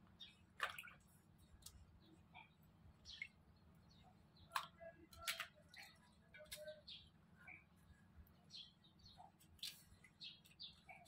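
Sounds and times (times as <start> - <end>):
water splashing in basin: 0.5 - 1.8, 4.5 - 6.8.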